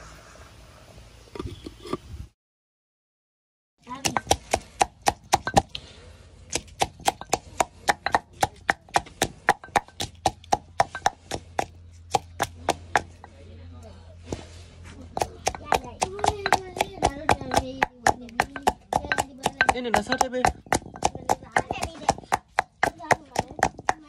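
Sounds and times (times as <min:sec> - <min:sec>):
pestle pounding in clay mortar: 0:03.8 - 0:05.9, 0:06.5 - 0:13.4, 0:14.3 - 0:24.0.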